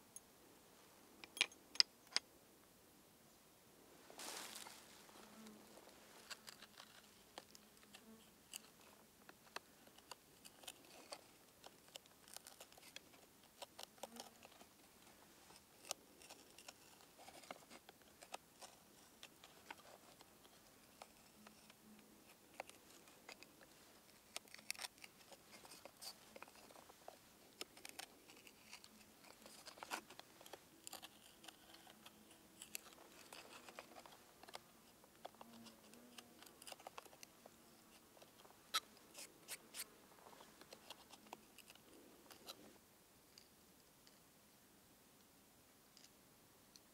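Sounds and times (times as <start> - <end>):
knife scraping wood: 22.5 - 34.7, 35.3 - 37.2.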